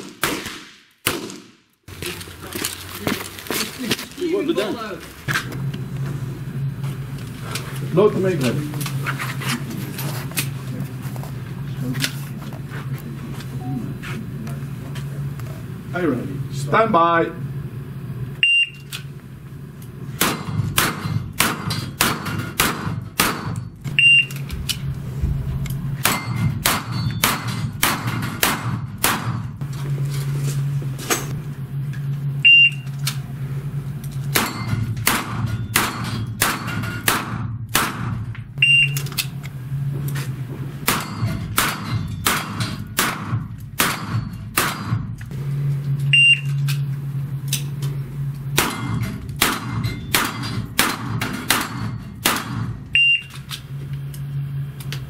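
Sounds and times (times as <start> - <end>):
steady low hum: 0.0 - 55.0
shot timer start beep: 18.4 - 18.8, 24.0 - 24.4, 32.4 - 32.8, 38.6 - 39.0, 46.1 - 46.5, 53.0 - 53.3
pistol shots hitting steel plates: 20.2 - 23.8, 26.0 - 29.6, 34.3 - 38.3, 40.8 - 45.2, 48.6 - 52.8.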